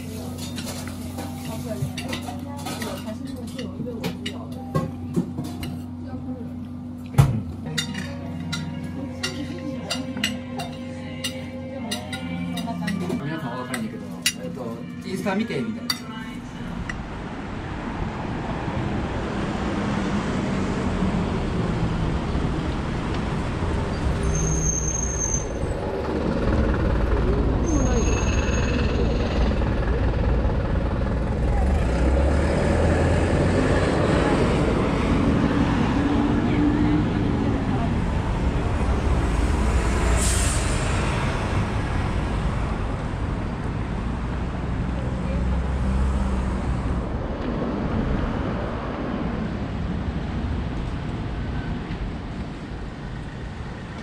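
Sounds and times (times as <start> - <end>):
bus engine: 0.0 - 54.0
traffic rumble: 0.0 - 54.0
brief high squeal: 23.9 - 25.6, 27.6 - 29.0.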